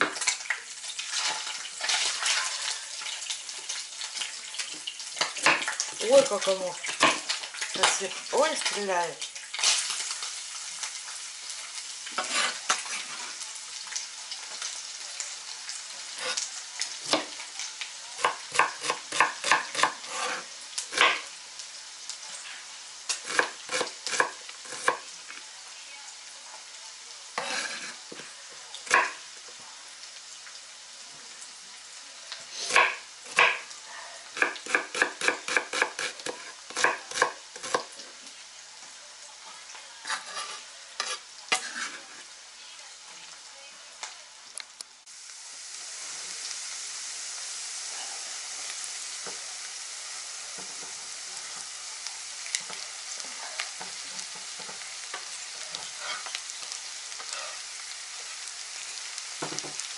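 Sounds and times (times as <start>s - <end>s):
fat sizzling in a pan: 0.0s - 59.9s
knife chopping on wooden board: 18.2s - 20.4s.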